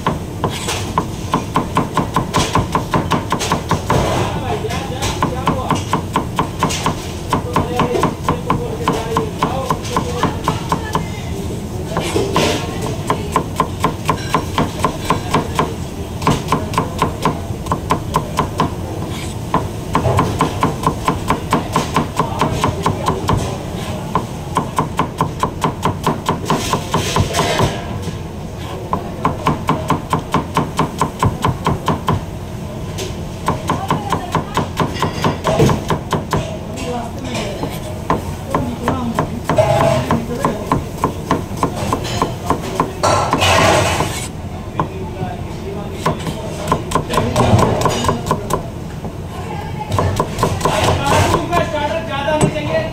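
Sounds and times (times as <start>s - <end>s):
knife chopping on cutting board: 0.0s - 4.3s, 5.0s - 11.0s, 11.9s - 23.6s, 24.2s - 27.8s, 33.4s - 36.6s, 37.6s - 44.9s, 46.0s - 48.6s, 49.9s - 51.7s.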